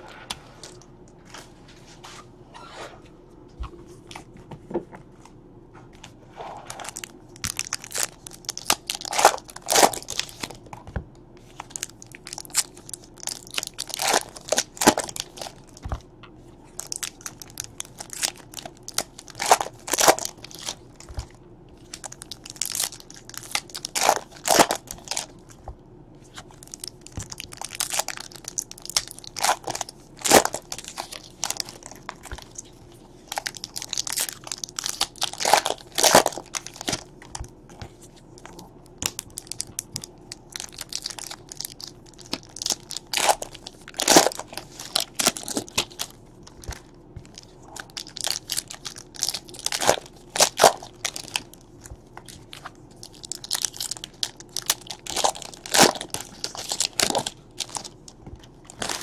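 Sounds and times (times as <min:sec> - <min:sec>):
card pack wrappers tearing: 0:06.7 - 0:10.6, 0:11.6 - 0:15.9, 0:16.7 - 0:21.2, 0:21.8 - 0:25.4, 0:26.6 - 0:37.5, 0:38.4 - 0:51.6, 0:52.2 - 0:59.0.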